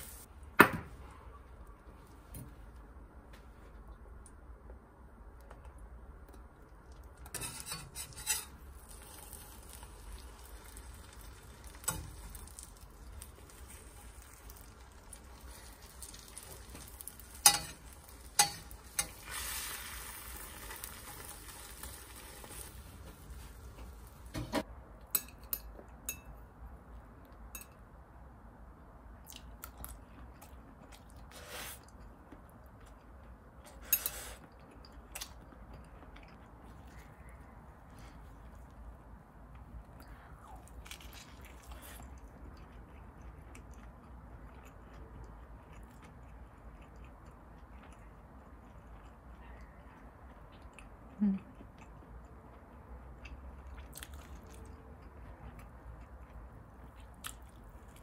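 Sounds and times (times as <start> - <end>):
food sizzling in frying pan: 0.0 - 0.3, 8.8 - 24.3.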